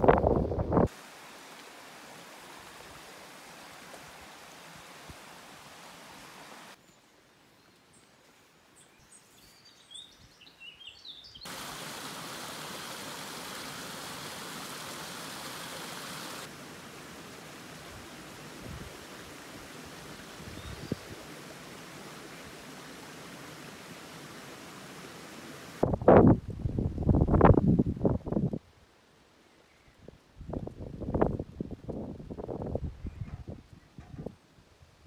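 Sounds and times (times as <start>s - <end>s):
bird chirping: 8.8s - 11.5s
outdoor ambient noise: 11.3s - 35.0s.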